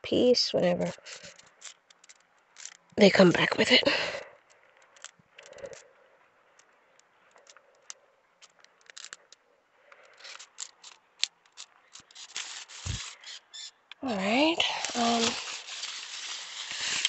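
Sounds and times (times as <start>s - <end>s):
leaves rustling and scraping: 0.4s - 3.9s, 10.0s - 17.0s.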